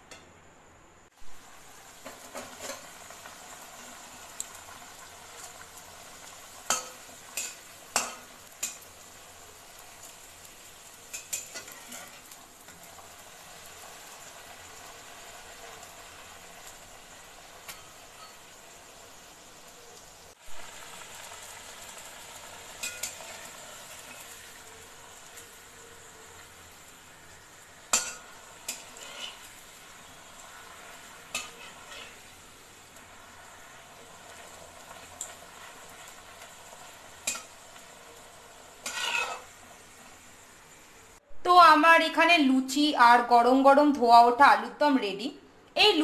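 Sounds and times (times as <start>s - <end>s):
deep-frying in hot oil sizzle: 1.1s - 41.2s
metal spatula scraping pan: 11.1s - 12.3s, 27.9s - 29.6s, 31.3s - 32.4s, 38.8s - 39.5s.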